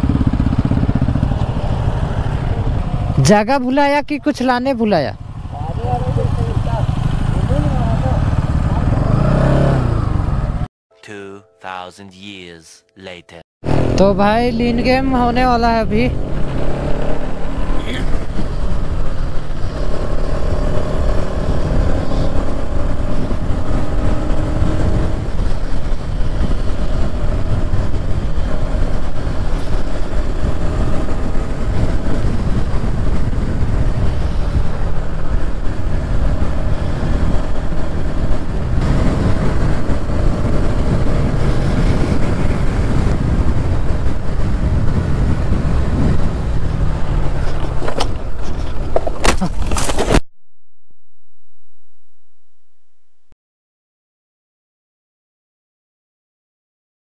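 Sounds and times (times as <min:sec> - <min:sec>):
wind rumble on microphone: 0:00.0 - 0:03.4, 0:13.8 - 0:50.2
motorcycle engine at speed: 0:00.0 - 0:03.5, 0:05.1 - 0:10.7, 0:13.6 - 0:50.2.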